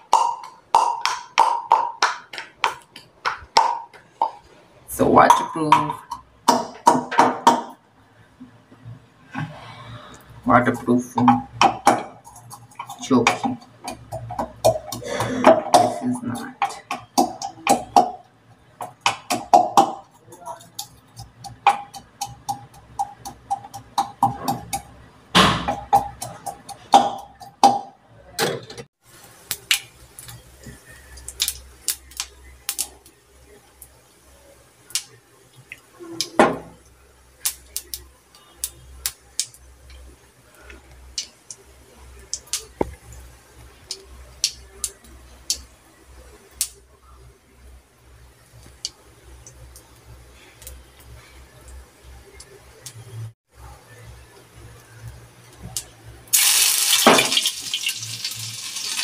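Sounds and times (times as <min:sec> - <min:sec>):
seeds spluttering in hot oil: 0:29.0 - 0:46.9, 0:54.4 - 0:59.0.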